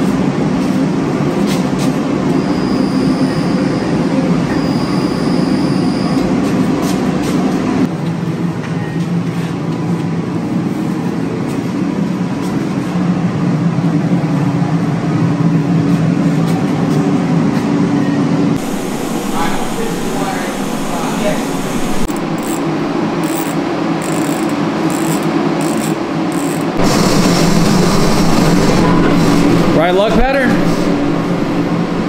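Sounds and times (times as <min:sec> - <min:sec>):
machinery drone: 0:02.0 - 0:07.9, 0:18.4 - 0:32.0
faint high whine: 0:02.3 - 0:06.4, 0:18.6 - 0:32.0.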